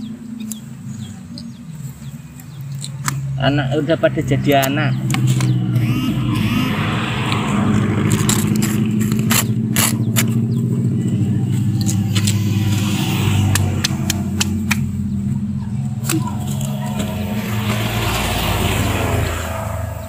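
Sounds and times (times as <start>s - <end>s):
sharp clicks: 4.5s - 10.4s
bees buzzing: 5.5s - 8.1s, 11.1s - 20.0s.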